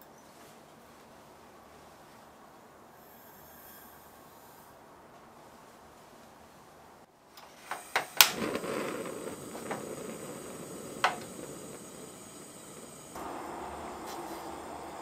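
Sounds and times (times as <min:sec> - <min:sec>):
burner flame hissing: 0:07.4 - 0:15.0
gas stove igniter clicks: 0:07.4 - 0:15.0.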